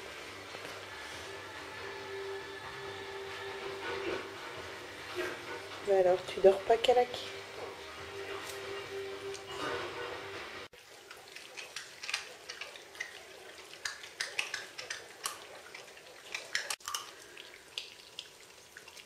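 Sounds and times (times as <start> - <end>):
puppies chewing bone: 10.8 - 19.0.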